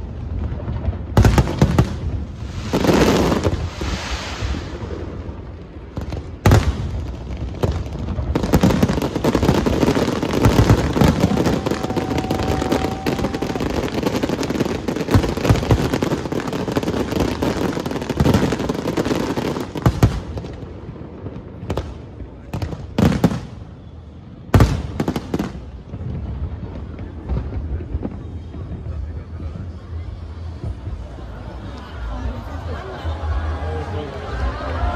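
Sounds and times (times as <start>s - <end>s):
fireworks bangs and crackling: 0.0s - 34.9s.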